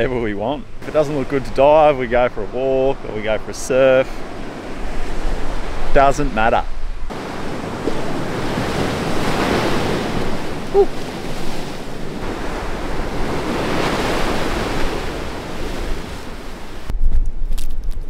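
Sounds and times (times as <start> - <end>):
surf breaking over rocks: 7.1 - 16.9.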